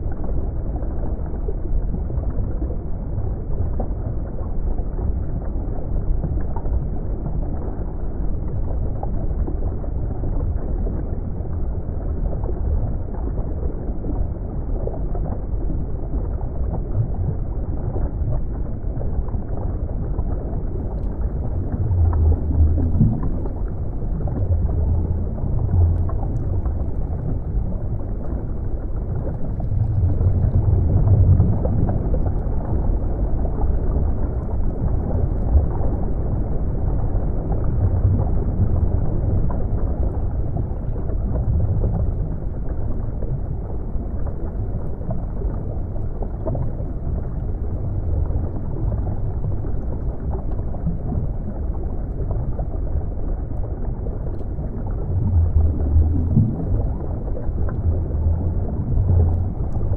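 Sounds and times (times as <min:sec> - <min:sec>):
muffled underwater rumble: 0:00.0 - 0:59.9
faint ticks: 0:20.8 - 0:33.0, 0:54.2 - 0:58.2.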